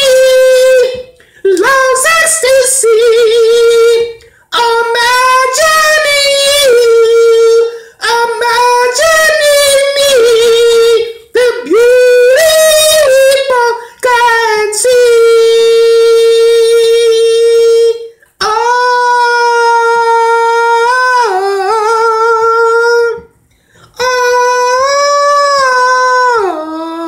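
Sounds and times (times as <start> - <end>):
man singing unaccompanied: 0.0 - 23.3, 24.0 - 27.0
short breaths: 23.4 - 24.0.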